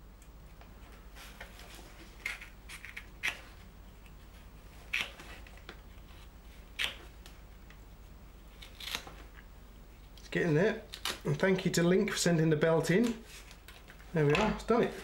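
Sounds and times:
crisp snips: 0:04.9 - 0:05.3, 0:06.7 - 0:07.1, 0:08.6 - 0:09.1.

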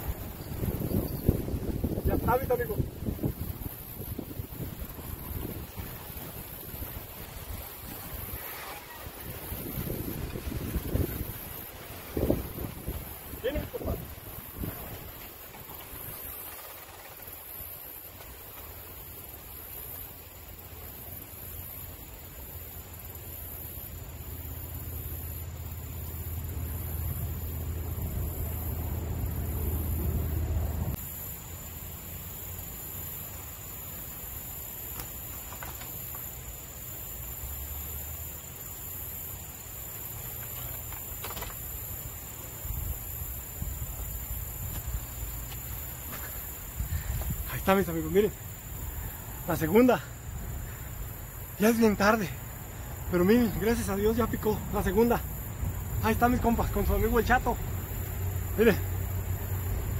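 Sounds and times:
wind rumble on microphone: 0:00.0 - 0:16.4, 0:42.4 - 0:47.9, 0:52.6 - 0:58.5
high insect chorus: 0:00.0 - 0:59.9.

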